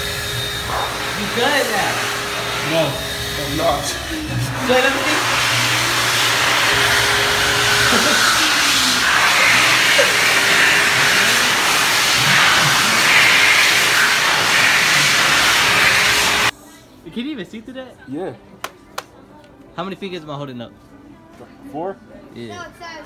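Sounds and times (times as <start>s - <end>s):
electric hand dryer blowing: 0.0s - 16.5s.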